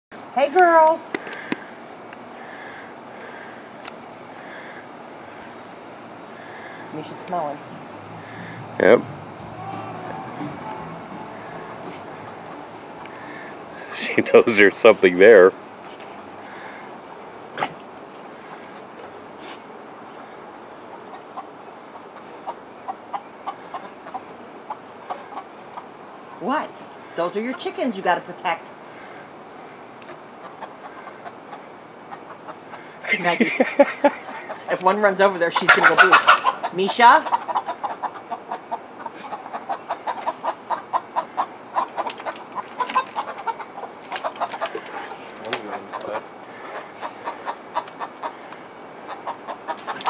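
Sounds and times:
steady background hiss: 0:00.1 - 0:50.0
hens clucking: 0:01.1 - 0:50.0.

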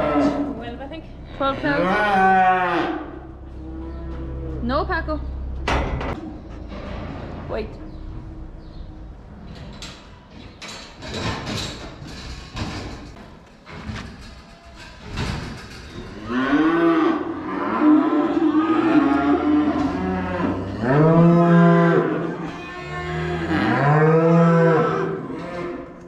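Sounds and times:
cattle mooing: 0:00.0 - 0:04.6, 0:16.2 - 0:26.0.

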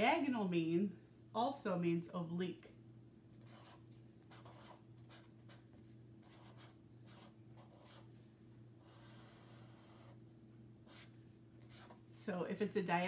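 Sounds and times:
marker scratching on paper: 0:03.4 - 0:08.1, 0:08.8 - 0:10.2, 0:10.8 - 0:12.0.

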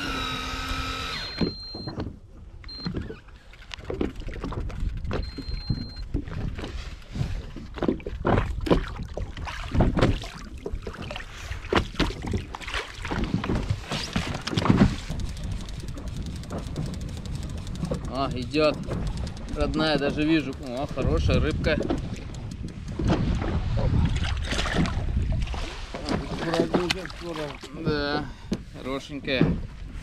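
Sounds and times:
water slapping boat hull: 0:00.0 - 0:30.0
short high electronic beeps: 0:00.8 - 0:02.0, 0:05.2 - 0:06.0.

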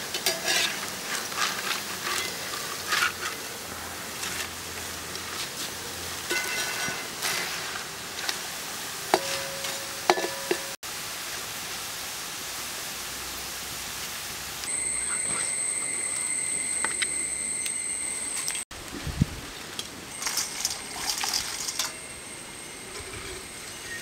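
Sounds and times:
food sizzling in hot oil: 0:00.0 - 0:18.6
metal spoon clinking on pan: 0:06.3 - 0:07.4, 0:09.1 - 0:10.8
steady high whine: 0:14.6 - 0:18.9, 0:19.8 - 0:24.0.

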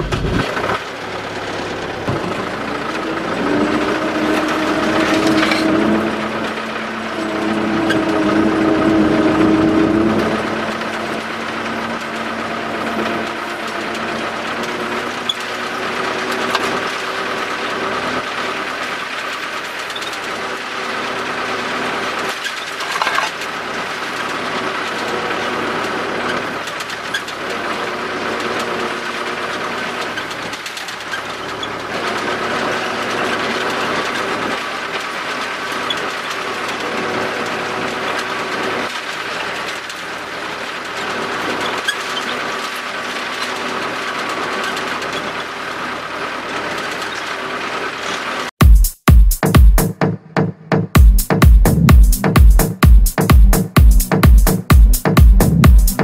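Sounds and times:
tractor diesel engine running: 0:00.0 - 0:56.0
cab knocks and rattles: 0:01.8 - 0:06.8.

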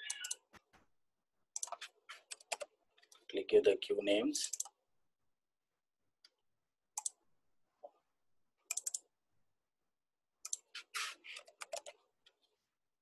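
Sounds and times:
computer mouse clicks: 0:00.0 - 0:00.5, 0:01.6 - 0:03.2, 0:04.5 - 0:04.8, 0:07.0 - 0:07.2, 0:08.7 - 0:09.1, 0:10.4 - 0:12.0.

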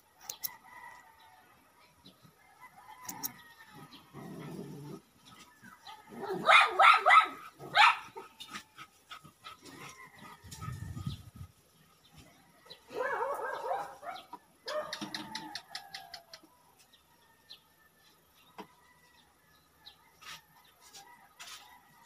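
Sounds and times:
dog barking: 0:06.2 - 0:08.2, 0:12.9 - 0:15.1.

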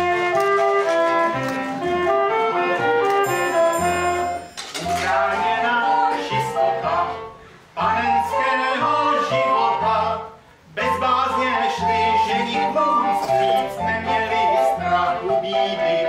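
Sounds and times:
person singing folk song: 0:04.8 - 0:16.0.

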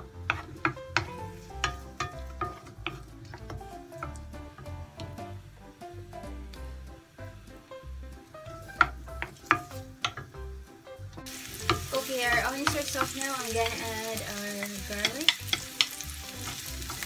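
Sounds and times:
wooden spoon knocking on pan: 0:00.0 - 0:05.2, 0:08.4 - 0:10.4, 0:11.2 - 0:17.0
onions sizzling in hot oil: 0:00.0 - 0:17.0.

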